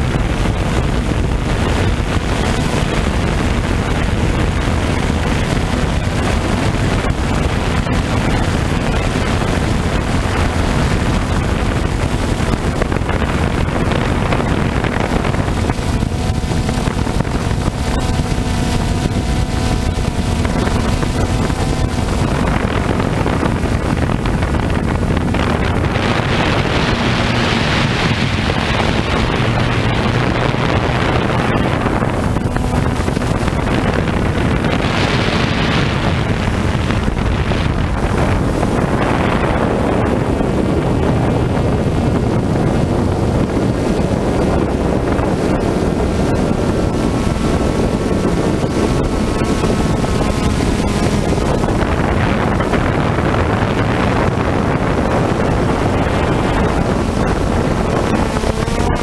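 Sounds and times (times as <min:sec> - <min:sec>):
drone propellers buzzing: 0:00.0 - 0:59.0
wind rushing over microphone: 0:00.0 - 0:59.0.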